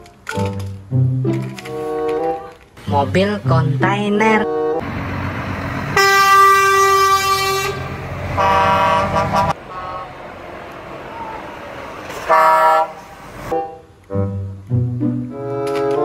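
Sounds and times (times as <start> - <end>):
lorries driving past: 0.0 - 15.4
truck air horn blasts: 6.0 - 10.2, 12.1 - 13.8.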